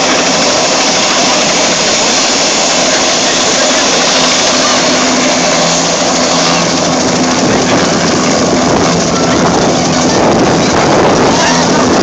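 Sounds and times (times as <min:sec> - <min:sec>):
helicopter turbine rushing: 0:00.0 - 0:12.0
low hum: 0:00.0 - 0:12.0.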